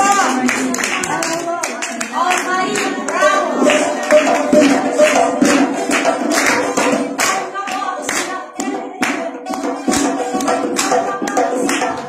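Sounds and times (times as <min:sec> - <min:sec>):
person singing: 0:00.0 - 0:05.9
sharp percussive beat: 0:00.0 - 0:12.0.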